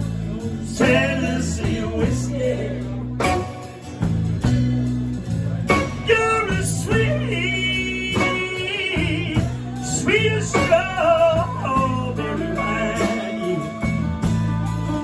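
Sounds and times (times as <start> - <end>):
blues band playing: 0.0 - 15.0.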